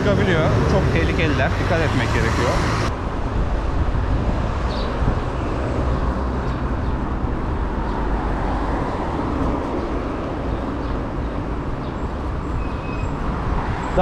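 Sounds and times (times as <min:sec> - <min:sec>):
city road traffic: 0:00.0 - 0:14.0
wind rumble on microphone: 0:02.8 - 0:14.0.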